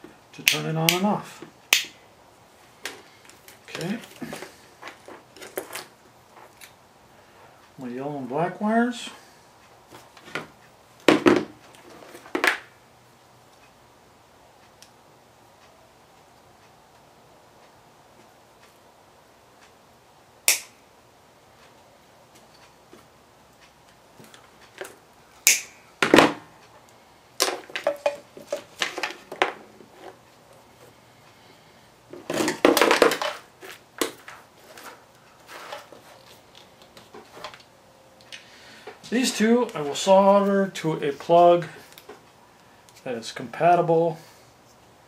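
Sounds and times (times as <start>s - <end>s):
wire and tool rustling: 2.6s - 7.7s, 9.1s - 12.7s, 21.5s - 43.1s
sharp tool clicks: 20.4s - 20.8s, 25.4s - 25.8s.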